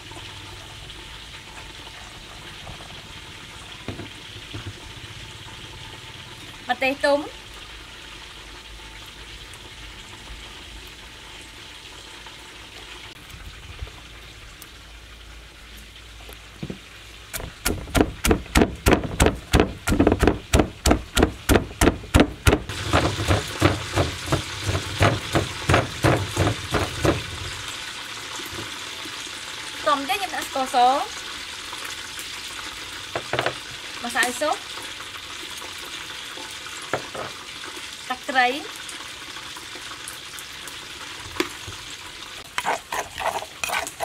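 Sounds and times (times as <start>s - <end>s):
wooden pestle pounding in mortar: 17.4s - 27.4s.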